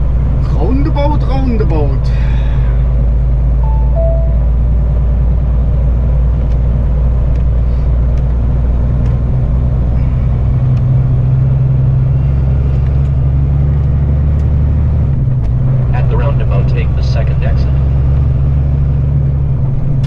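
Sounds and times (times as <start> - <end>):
diesel truck engine running: 0.0 - 20.0
falling two-note beep: 3.6 - 4.6.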